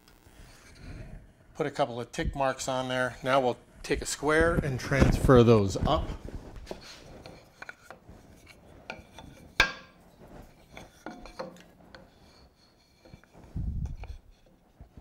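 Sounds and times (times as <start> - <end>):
wooden block handling scrapes: 6.2 - 15.0.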